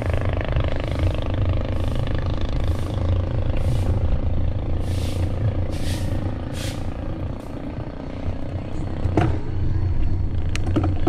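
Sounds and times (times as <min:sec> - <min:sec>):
motorcycle engine running: 0:00.0 - 0:11.0
road and wind rumble: 0:00.0 - 0:11.0
short hissing rushes: 0:04.8 - 0:06.9.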